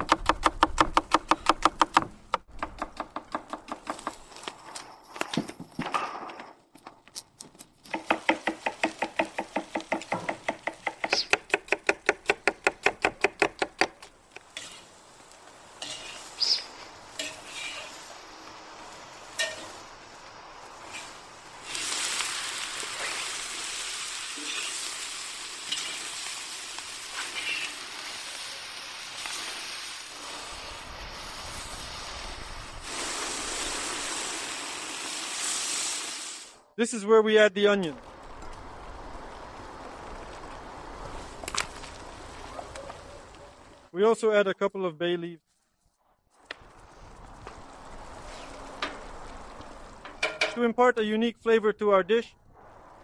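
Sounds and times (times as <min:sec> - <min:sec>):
food sizzling: 0:07.8 - 0:36.7, 0:37.9 - 0:43.9, 0:46.3 - 0:50.6.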